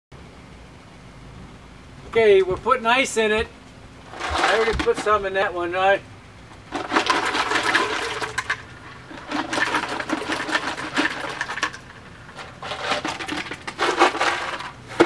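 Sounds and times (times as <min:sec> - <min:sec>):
ice cubes clattering into buckets: 0:04.1 - 0:05.2, 0:06.7 - 0:15.0.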